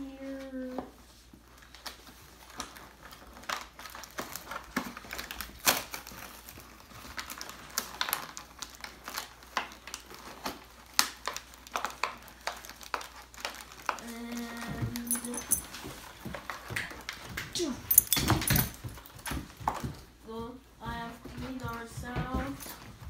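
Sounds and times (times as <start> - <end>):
cardboard and plastic packaging handled: 0.1 - 20.3
packaging snaps: 1.7 - 15.4.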